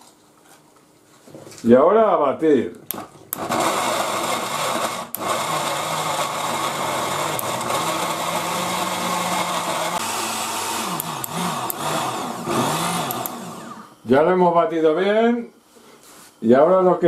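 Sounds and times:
blender grinding tomato: 0:02.9 - 0:14.0.

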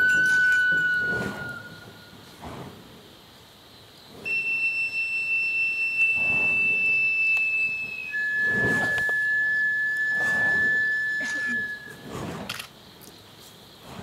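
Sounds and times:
high whistle-like note: 0:00.0 - 0:02.0, 0:04.3 - 0:12.0
burning props whooshing: 0:00.1 - 0:03.4, 0:06.0 - 0:13.0, 0:13.6 - 0:14.0.

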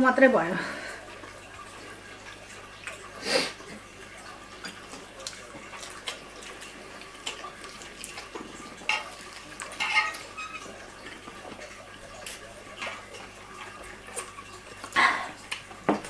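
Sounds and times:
plates clinking: 0:08.8 - 0:10.8.

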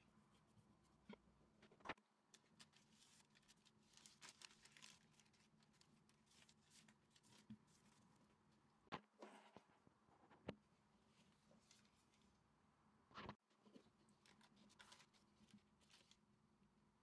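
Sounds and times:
baking paper rustling: 0:02.3 - 0:08.3, 0:13.6 - 0:16.2.

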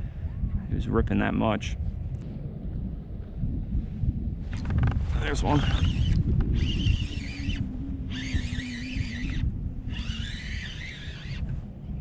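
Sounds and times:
wind buffeting microphone: 0:00.0 - 0:12.0
high-pitched whine: 0:04.5 - 0:12.0.

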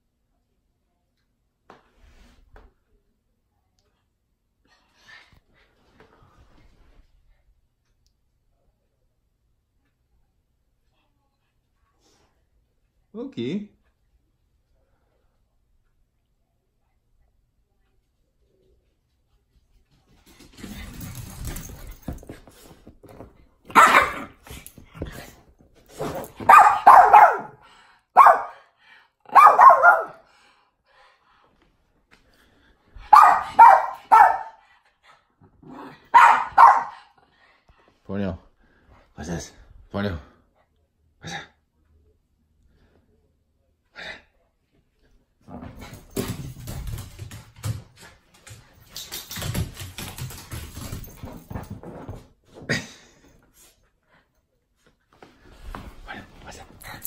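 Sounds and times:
paws scrabbling on hardwood floor: 0:19.5 - 0:27.3, 0:45.5 - 0:52.7
dogs scuffling: 0:20.0 - 0:26.8, 0:45.5 - 0:52.6
small dog barking: 0:23.7 - 0:24.4, 0:26.4 - 0:27.6, 0:28.2 - 0:28.6, 0:29.3 - 0:30.2, 0:33.1 - 0:34.6, 0:36.1 - 0:37.0.

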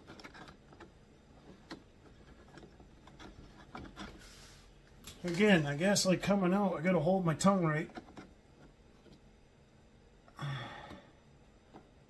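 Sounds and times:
small parts clicking and tapping: 0:00.0 - 0:04.2, 0:07.8 - 0:09.3.

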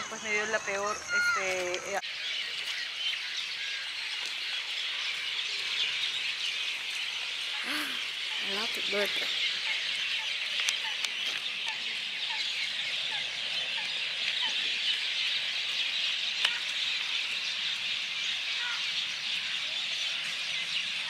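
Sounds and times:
chorus of birds chirping: 0:00.0 - 0:21.0.

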